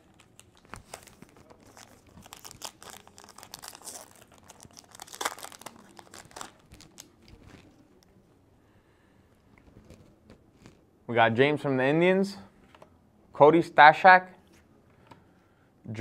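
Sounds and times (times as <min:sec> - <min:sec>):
wrapper tearing and crinkling: 0:00.0 - 0:07.8.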